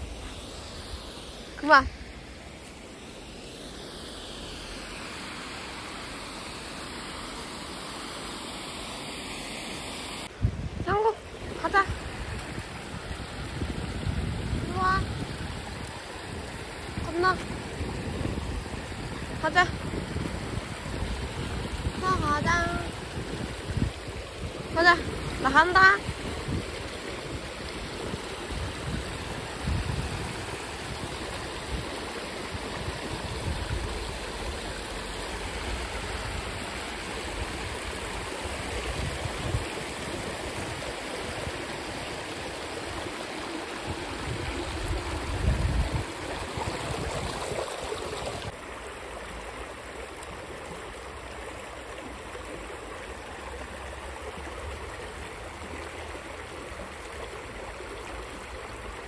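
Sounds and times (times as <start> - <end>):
stream water rushing: 0.0 - 59.0
wind thumps on microphone: 10.3 - 25.4, 43.9 - 48.5.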